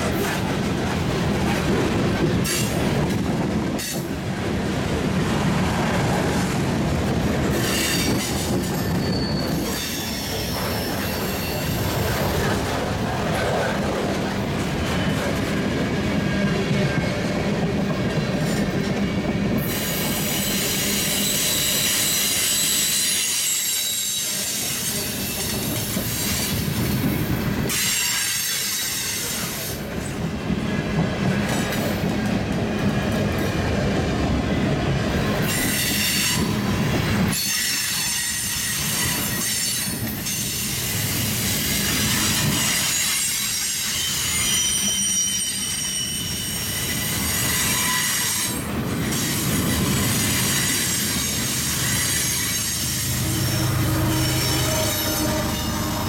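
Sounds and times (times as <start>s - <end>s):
steel wheels rumbling on rail: 0.0s - 56.0s
high-pitched wheel squeal: 7.6s - 12.0s, 42.4s - 48.5s, 50.0s - 56.0s.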